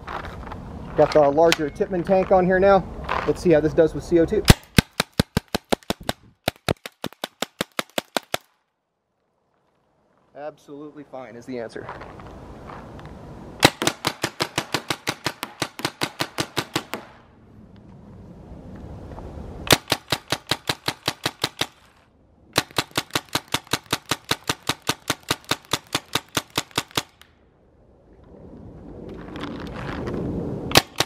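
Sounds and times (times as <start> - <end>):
paintball marker shots popping: 4.5 - 8.5, 13.6 - 17.2, 30.7 - 31.0.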